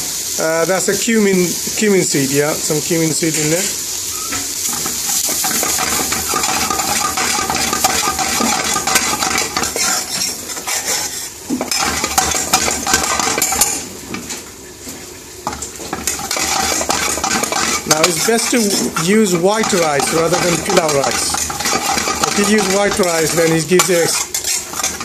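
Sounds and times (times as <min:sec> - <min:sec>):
light sizzle of frying: 0:00.0 - 0:25.0
metal spoon scraping frying pan: 0:04.3 - 0:14.4, 0:15.4 - 0:25.0.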